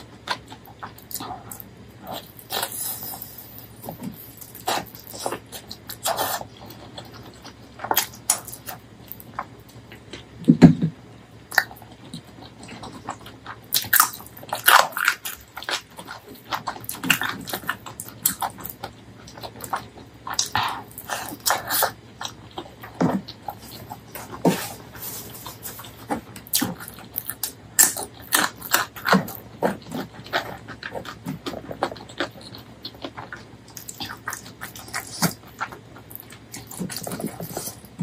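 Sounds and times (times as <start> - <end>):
wet chewing and lip-smacking: 11.5 - 38.0.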